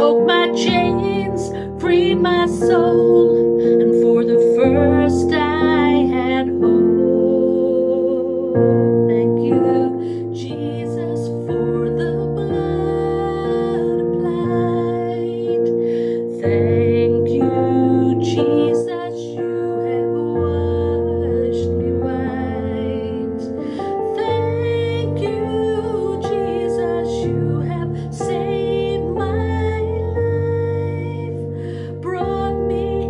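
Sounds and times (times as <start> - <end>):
sustained keyboard chords: 0.0 - 33.0
woman singing: 0.0 - 33.0.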